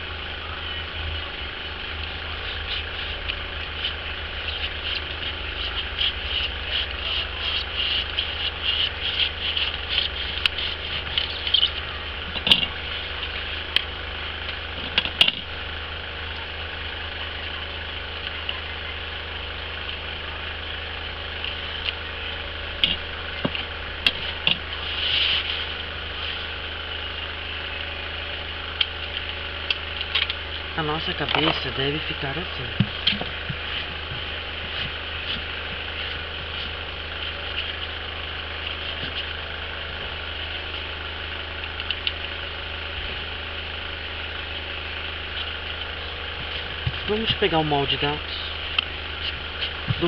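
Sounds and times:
steady low hum: 0:00.0 - 0:50.0
knife scratching through foam: 0:04.5 - 0:11.6.

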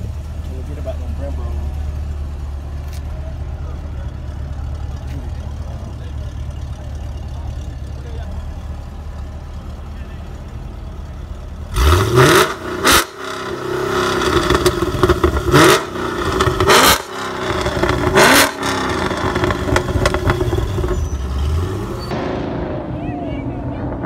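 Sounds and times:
car engine idling: 0:00.0 - 0:24.0
car engine revving: 0:11.2 - 0:24.0.

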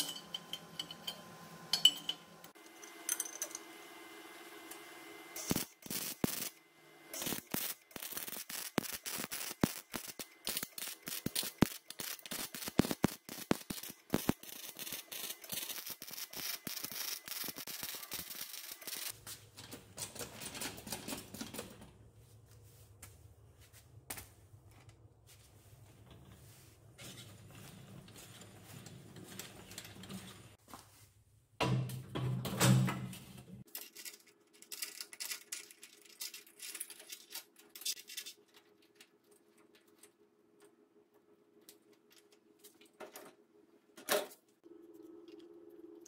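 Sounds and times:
hand tools clicking and clattering: 0:00.0 - 0:03.6, 0:07.2 - 0:21.9.

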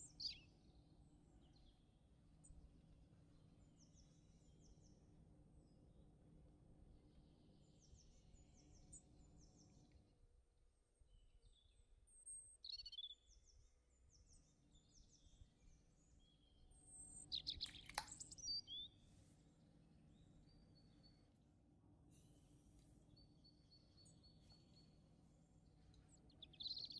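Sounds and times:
small birds chirping: 0:00.0 - 0:05.8, 0:07.0 - 0:10.1, 0:11.0 - 0:21.5, 0:22.1 - 0:26.9
sharp clicks: 0:17.5 - 0:18.4.

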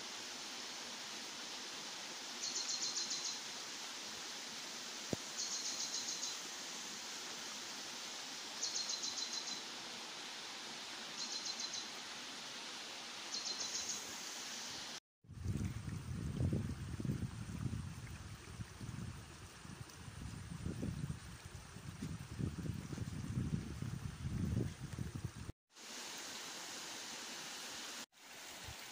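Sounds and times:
flowing water rushing: 0:00.0 - 0:15.6, 0:25.0 - 0:28.9.

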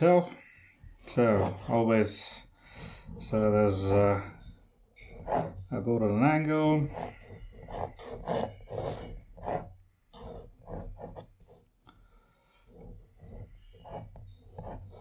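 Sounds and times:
pencil scratching on paper: 0:01.1 - 0:02.1, 0:05.0 - 0:05.8, 0:06.8 - 0:11.7, 0:12.6 - 0:15.0.

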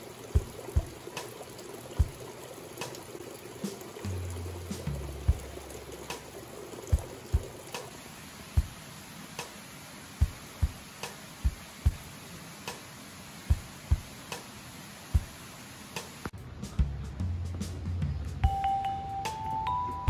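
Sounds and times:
water pouring onto metal grate: 0:00.0 - 0:08.7
soft kick-drum beat with ticks: 0:00.2 - 0:03.0, 0:03.6 - 0:07.9, 0:08.6 - 0:08.8, 0:10.2 - 0:12.1, 0:13.5 - 0:14.5, 0:15.1 - 0:15.4, 0:16.0 - 0:20.0.

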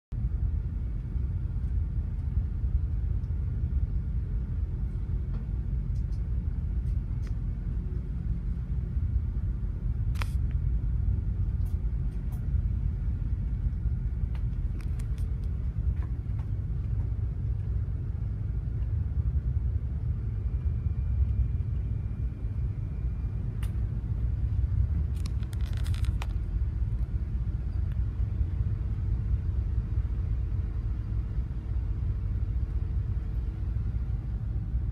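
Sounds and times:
ship engine low rumble: 0:00.0 - 0:34.9.

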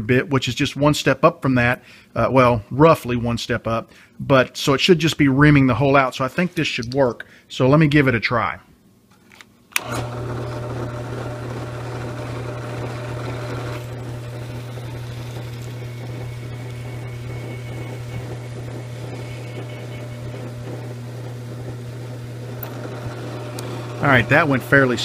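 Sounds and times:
drill bit cutting wood: 0:09.8 - 0:25.0
drill press motor running: 0:09.8 - 0:25.0.

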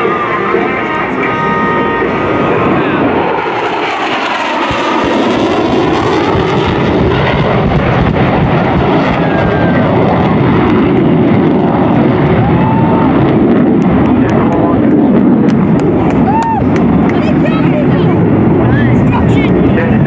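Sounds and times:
faint gliding whine: 0:00.0 - 0:07.4
jet roar: 0:00.0 - 0:20.0.

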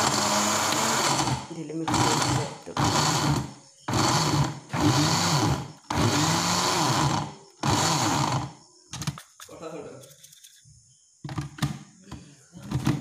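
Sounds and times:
mixer grinder motor: 0:00.0 - 0:08.6.

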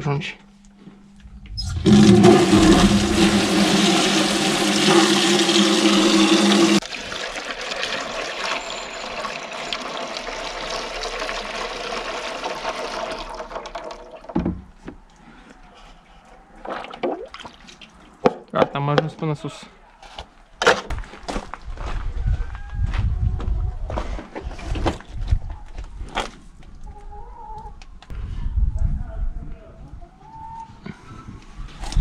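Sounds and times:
water trickling through funnel: 0:01.4 - 0:14.4
tap water gushing into jug: 0:01.6 - 0:14.5.

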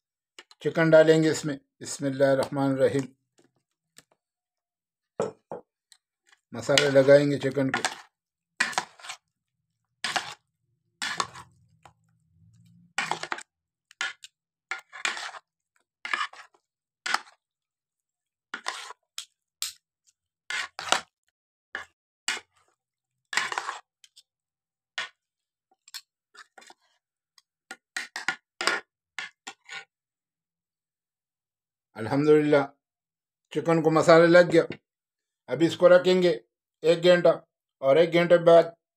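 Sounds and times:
metal spoons scraping a ceramic plate: 0:06.7 - 0:09.3, 0:10.0 - 0:10.4, 0:11.0 - 0:11.9, 0:12.6 - 0:15.4, 0:18.6 - 0:19.8, 0:23.3 - 0:24.3.

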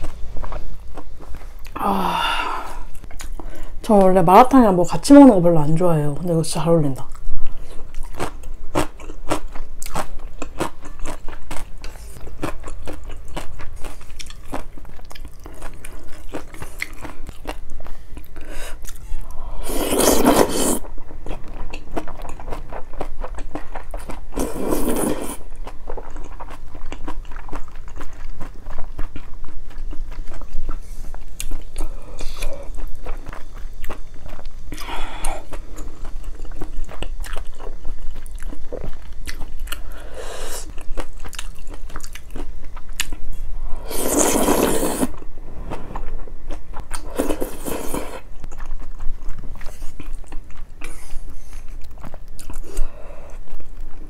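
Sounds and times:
wet chewing: 0:07.1 - 0:40.0, 0:40.6 - 0:45.3, 0:45.9 - 0:54.0
noodle slurps: 0:19.6 - 0:20.8, 0:24.4 - 0:25.4, 0:43.8 - 0:45.2, 0:47.0 - 0:48.2.

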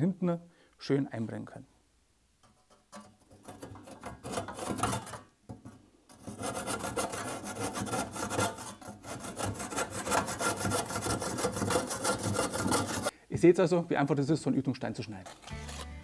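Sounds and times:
handsaw cutting concrete block: 0:03.5 - 0:05.2, 0:06.1 - 0:13.1, 0:15.2 - 0:16.0.

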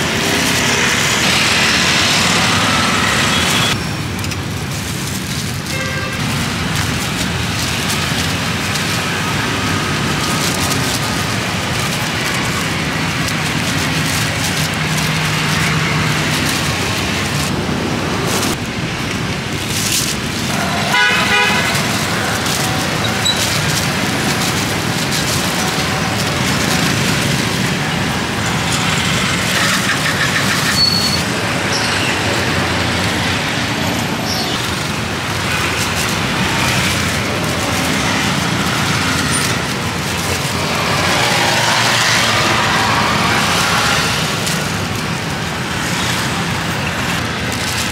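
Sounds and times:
street traffic: 0:00.0 - 0:47.9
vehicle horn toot: 0:05.7 - 0:06.3, 0:20.8 - 0:21.8.

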